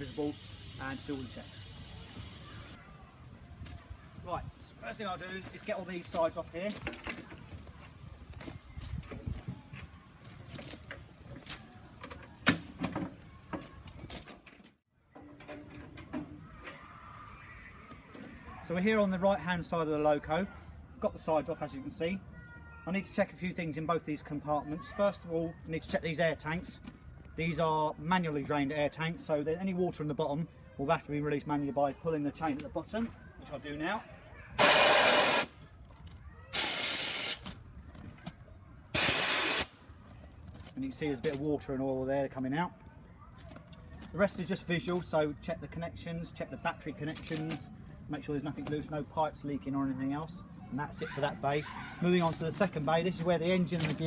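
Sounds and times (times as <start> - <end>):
compressed air bursts: 0.0 - 2.8, 34.6 - 35.6, 36.5 - 37.4, 39.0 - 39.8.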